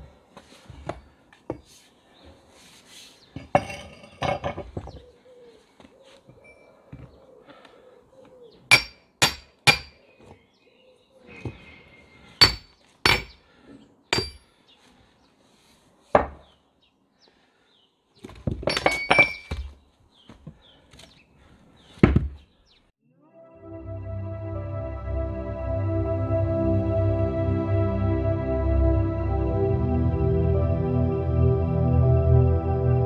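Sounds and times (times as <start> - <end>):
sledgehammer clinking on wedges: 3.4 - 5.0, 8.7 - 10.0, 12.4 - 13.4, 14.1 - 14.5, 18.6 - 19.7.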